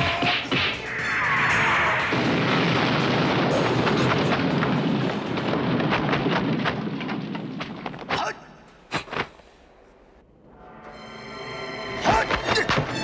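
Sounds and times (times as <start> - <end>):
crackling rush of flames: 0.4 - 9.5.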